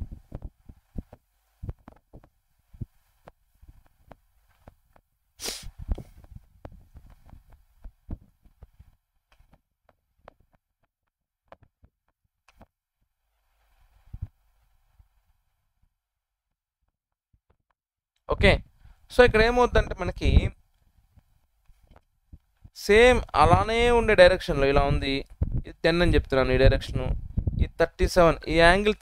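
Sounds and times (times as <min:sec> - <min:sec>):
short rush of noise: 0:05.4 - 0:06.1.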